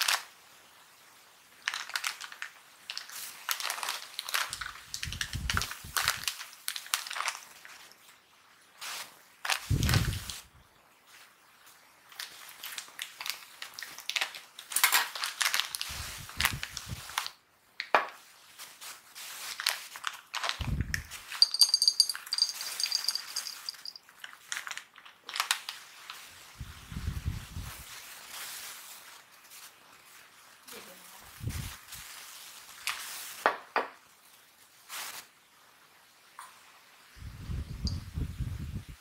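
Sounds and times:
foil bag crinkling: 0.0 - 0.3, 1.5 - 7.9, 8.8 - 10.4, 12.1 - 17.4, 18.5 - 26.3, 27.5 - 33.5
peanuts clattering into glass: 21.2 - 25.5.

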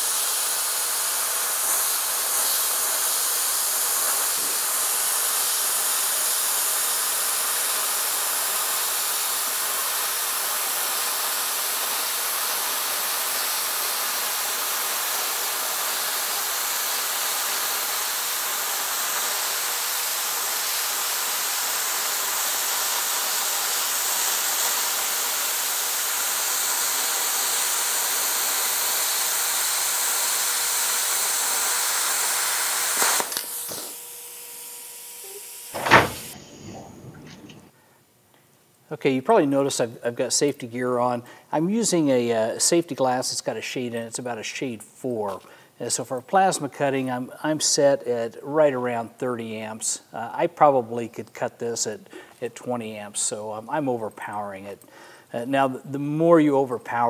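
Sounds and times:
plasma cutter hissing: 0.0 - 34.2, 35.0 - 37.7.

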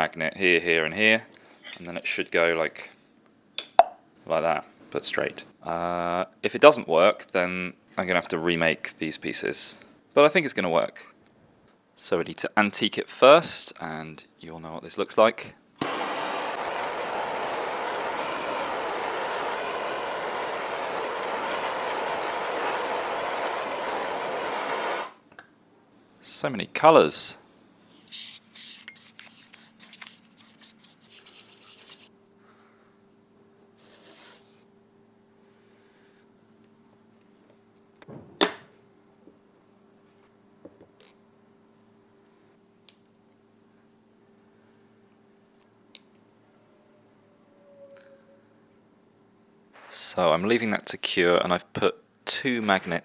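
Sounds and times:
blowtorch flame hissing: 15.8 - 25.2.

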